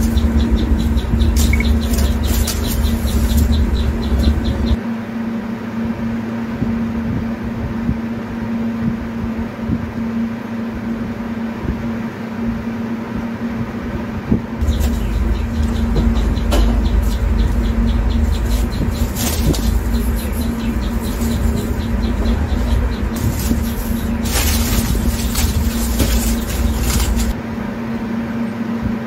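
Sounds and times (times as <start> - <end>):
deep rumble: 0.0 - 4.8, 14.3 - 27.4
machine hum: 0.0 - 29.0.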